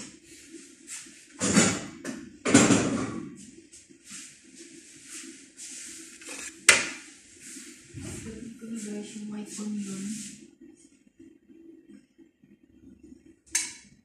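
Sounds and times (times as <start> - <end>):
low hum: 7.7 - 14.0.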